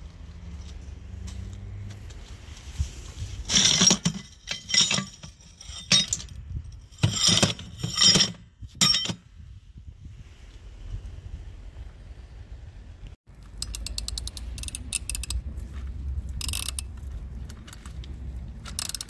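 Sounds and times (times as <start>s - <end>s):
steel discs clinking: 3.5s - 9.2s.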